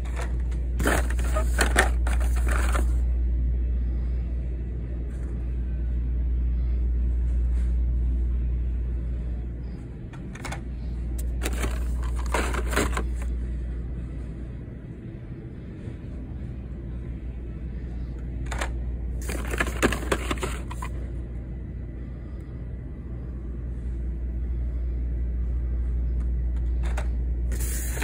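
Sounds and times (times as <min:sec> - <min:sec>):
blister cards rustling and scraping: 0:00.0 - 0:03.0, 0:11.2 - 0:13.3, 0:18.5 - 0:21.0
steady low rumble: 0:00.0 - 0:28.0.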